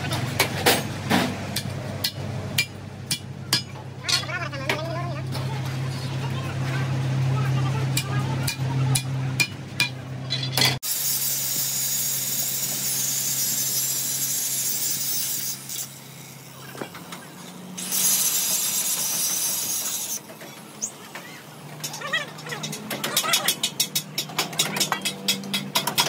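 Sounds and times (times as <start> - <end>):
angle grinder cutting steel: 10.3 - 16.6, 17.4 - 20.4.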